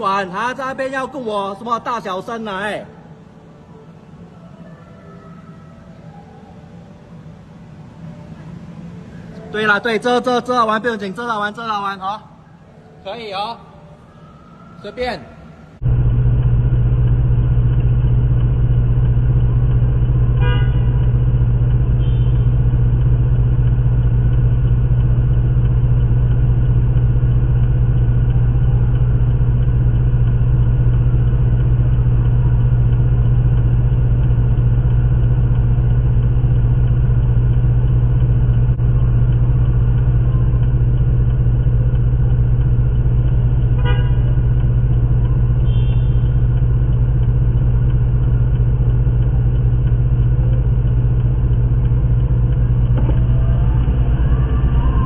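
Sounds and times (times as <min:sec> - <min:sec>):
low drone inside car: 0:01.8 - 0:11.8, 0:12.6 - 0:55.0
car horn toot: 0:20.3 - 0:22.7, 0:43.6 - 0:46.7.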